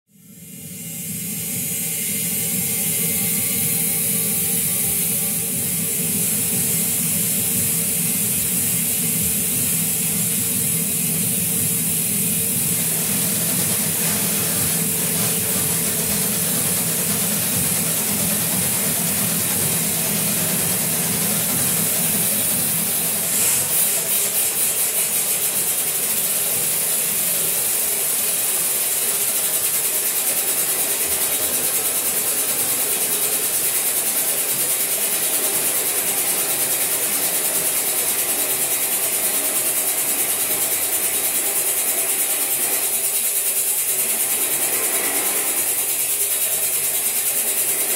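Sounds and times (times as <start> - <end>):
electronic noise music: 0.3 - 28.5
fast regular pulsing: 1.0 - 47.9.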